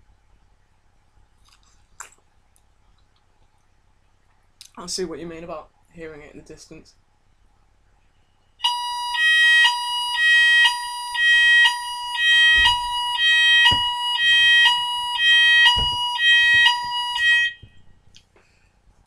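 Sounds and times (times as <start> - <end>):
two-tone fire alarm: 8.6 - 17.8
dull knocks: 12.4 - 17.8.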